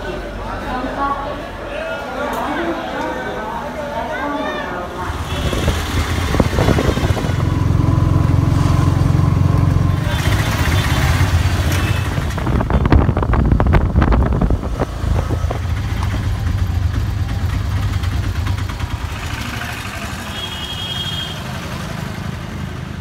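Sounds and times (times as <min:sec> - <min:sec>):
auto-rickshaw engine droning: 0:04.8 - 0:23.0.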